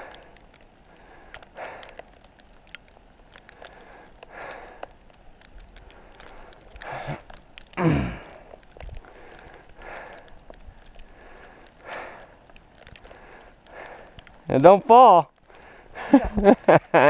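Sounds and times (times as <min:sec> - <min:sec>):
person breathing hard: 0:00.0 - 0:02.2, 0:03.5 - 0:05.0, 0:05.8 - 0:14.4, 0:15.4 - 0:16.4
faint ticks: 0:00.0 - 0:17.0.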